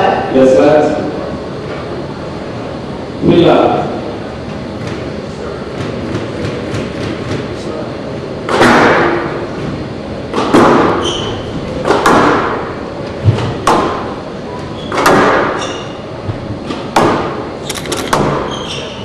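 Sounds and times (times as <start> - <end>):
squash ball hits echoing: 8.4 - 9.4, 10.3 - 14.2, 14.9 - 15.9, 16.6 - 17.5, 18.1 - 18.5
shoes squeaking on court floor: 11.0 - 11.6, 14.6 - 15.0, 18.2 - 19.0.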